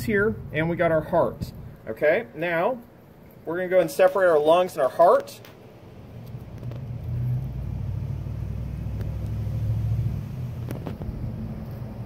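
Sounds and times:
low engine-like rumble: 5.8 - 12.0.

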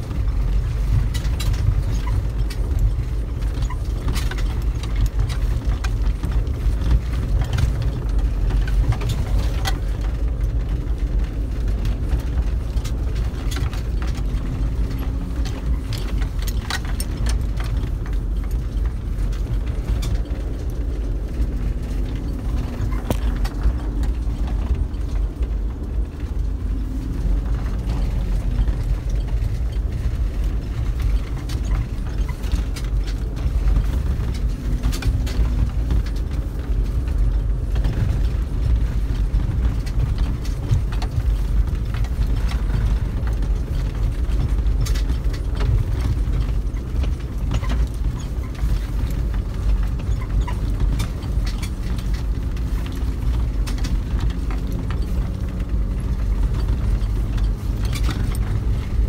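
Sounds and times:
clicks and rattles: 0.0 - 59.0
low engine rumble: 0.0 - 59.0.

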